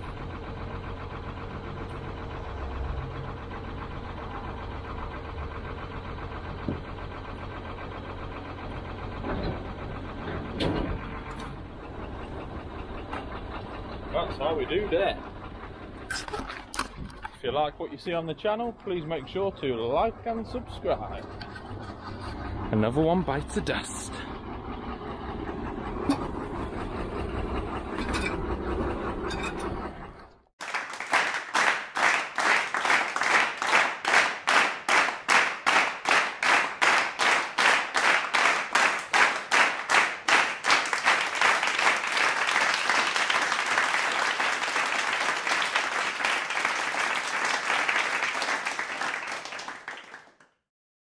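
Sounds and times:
applause: 30.6 - 50.6.

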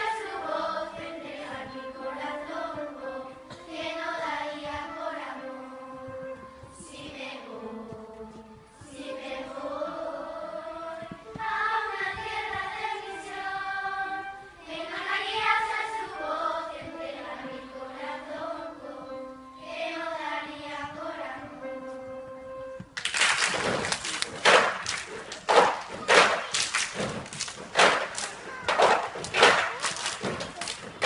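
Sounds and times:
children singing in unison: 0.0 - 22.1.

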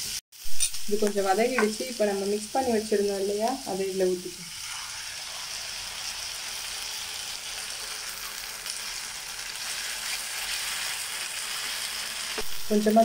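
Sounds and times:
sauce sizzling in a pan: 0.0 - 13.0
spatula stirring: 9.6 - 11.4.

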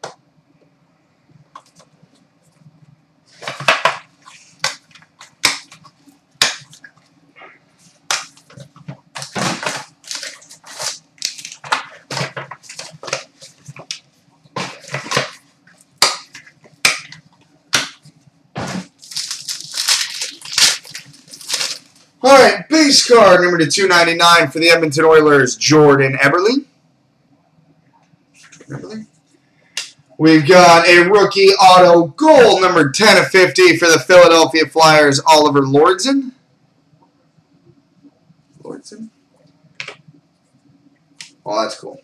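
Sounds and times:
cardboard and wrapping crinkling: 7.8 - 16.7, 18.6 - 22.2.

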